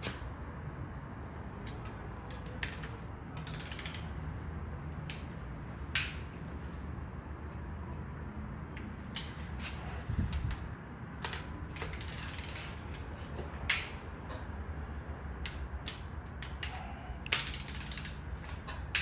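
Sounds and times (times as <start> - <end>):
ratchet wrench clicks: 2.3 - 4.3, 11.2 - 12.8, 15.4 - 19.0.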